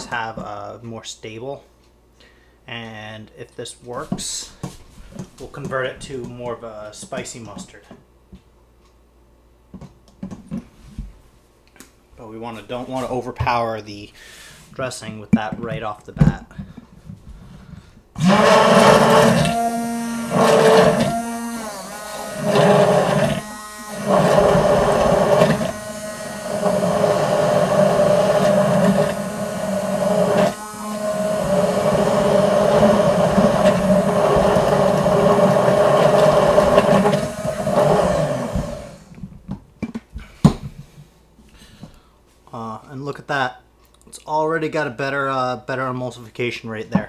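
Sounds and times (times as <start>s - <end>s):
immersion blender running: 18.2s - 39.1s.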